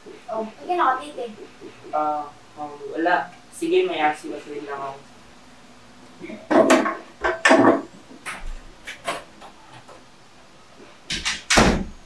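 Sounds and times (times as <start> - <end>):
household objects knocking and clattering: 6.5 - 10.0.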